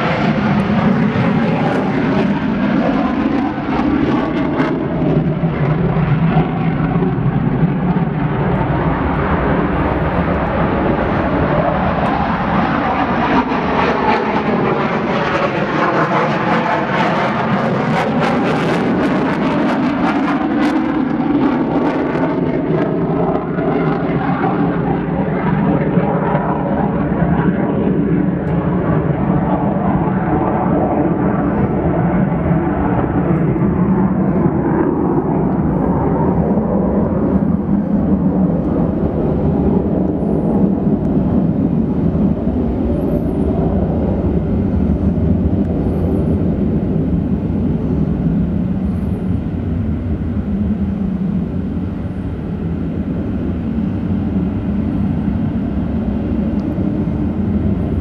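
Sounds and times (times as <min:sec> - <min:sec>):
jet engines roaring: 0:00.0 - 0:58.0.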